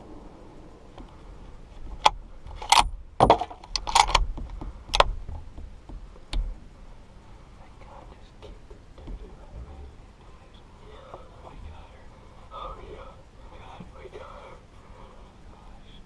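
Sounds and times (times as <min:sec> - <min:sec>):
rifle clicks and knocks: 0:02.0 - 0:06.5.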